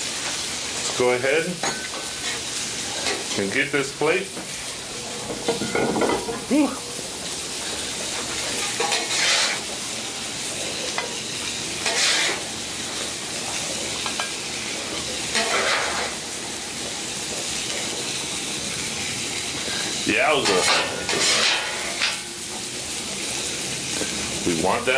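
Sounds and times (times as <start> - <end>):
food sizzling on griddle: 0.0 - 24.9
metal spatula scraping steel: 8.6 - 9.7, 11.8 - 12.4, 15.3 - 16.2, 20.5 - 22.2.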